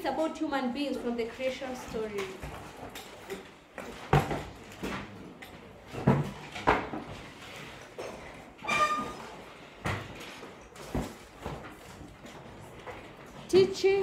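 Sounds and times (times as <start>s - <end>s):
high-pitched squeak: 8.6s - 9.4s.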